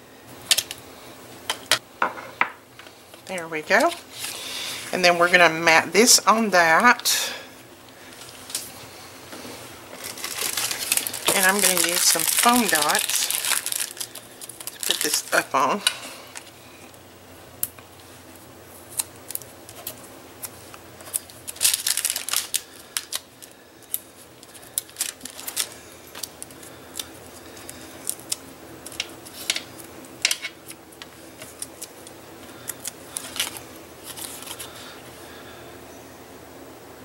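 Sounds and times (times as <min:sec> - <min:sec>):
paper rustling: 0:09.9 - 0:15.4, 0:31.1 - 0:35.0.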